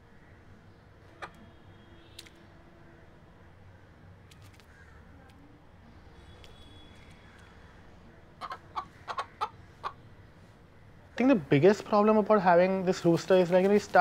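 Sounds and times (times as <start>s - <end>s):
rooster clucking: 8.4s - 10.0s.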